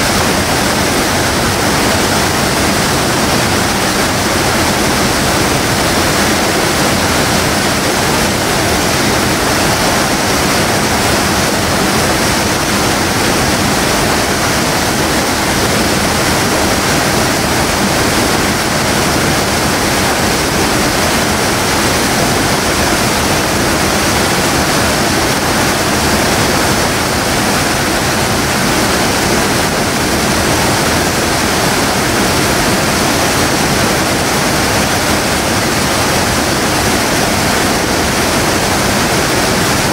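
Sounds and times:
river water rushing over weir: 0:00.0 - 0:39.9.

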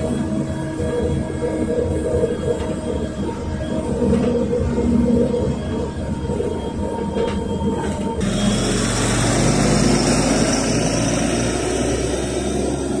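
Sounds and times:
bus engines running: 0:00.0 - 0:13.0
road noise inside a bus: 0:00.0 - 0:13.0
street traffic: 0:07.8 - 0:13.0.

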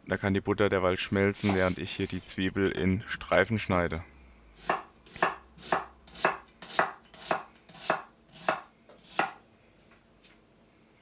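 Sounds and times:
knife chopping on wooden board: 0:04.6 - 0:09.4.

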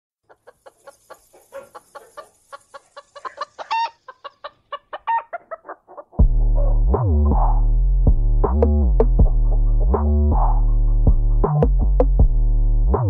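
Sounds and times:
chicken clucking: 0:00.2 - 0:06.7
chicken squawks: 0:00.3 - 0:06.8.

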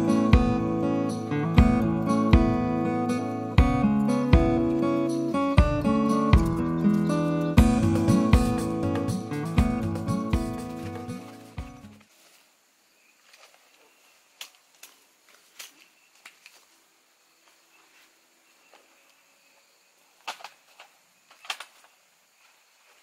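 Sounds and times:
camping gear clicks and knocks: 0:13.2 - 0:16.7, 0:20.2 - 0:22.0.

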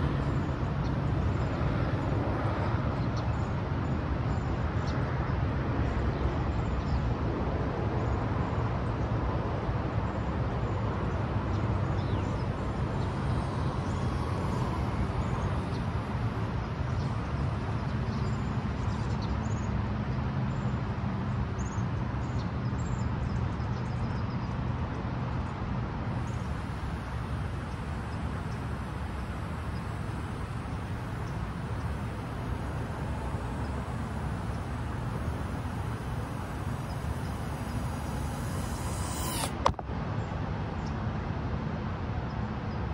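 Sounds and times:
outdoor background rumble: 0:00.0 - 0:04.7, 0:09.5 - 0:20.8, 0:26.0 - 0:39.9
faint high chirps: 0:12.0 - 0:18.5, 0:26.2 - 0:39.7.

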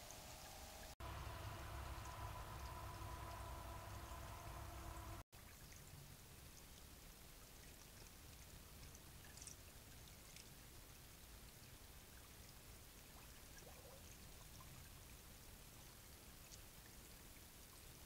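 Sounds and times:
creek trickling: 0:00.0 - 0:10.7.

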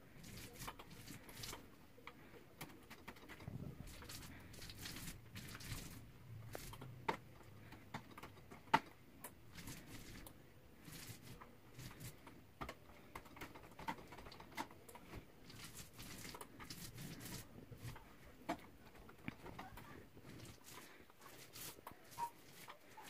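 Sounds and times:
paint roller swishing: 0:09.5 - 0:12.2, 0:15.1 - 0:18.1, 0:19.5 - 0:23.0.

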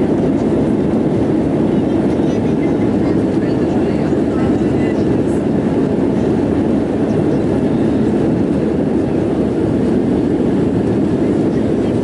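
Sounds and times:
jet engine cabin rush: 0:00.0 - 0:12.0.

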